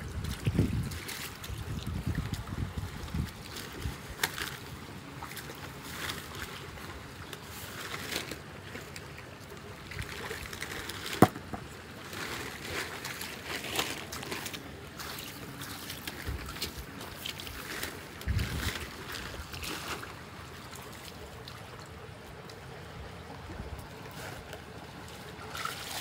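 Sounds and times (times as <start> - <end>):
muddy water running and splashing: 0.0 - 26.0.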